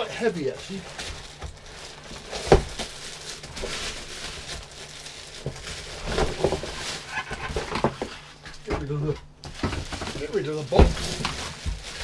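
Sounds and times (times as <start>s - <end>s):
plastic and cardboard rustling: 0.0s - 12.0s.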